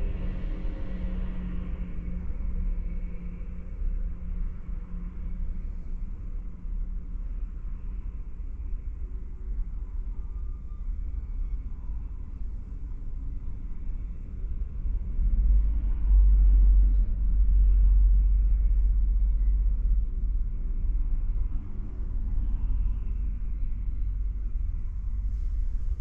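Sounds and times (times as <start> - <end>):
low rumble: 0.0 - 26.0.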